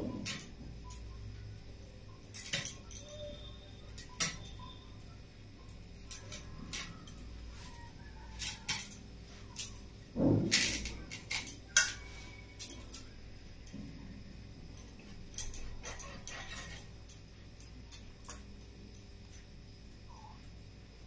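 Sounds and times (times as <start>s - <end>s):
knife scraping fish scales: 15.4s - 16.9s.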